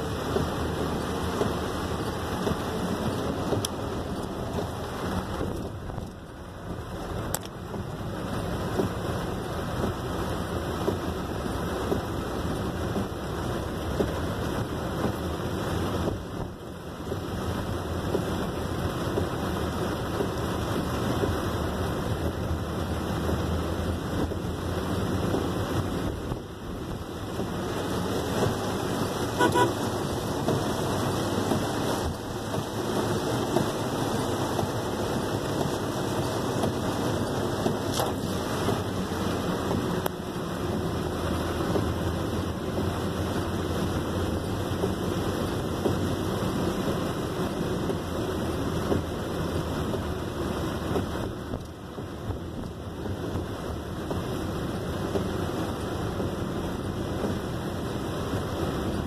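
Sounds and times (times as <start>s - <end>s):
heavy rain on a car: 0.0s - 59.0s
traffic: 0.0s - 59.0s
tyres hissing on wet road: 0.0s - 59.0s
car horn toot: 29.3s - 29.9s.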